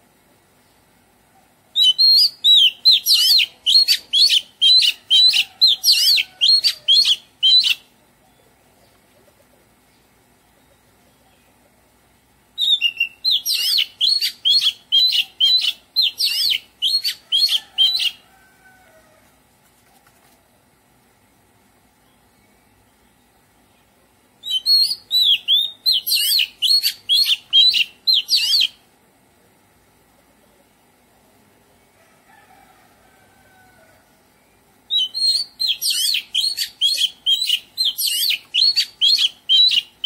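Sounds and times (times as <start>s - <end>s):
bird singing whistled notes: 1.8s - 7.8s, 12.6s - 18.2s, 24.4s - 28.8s, 34.9s - 39.9s.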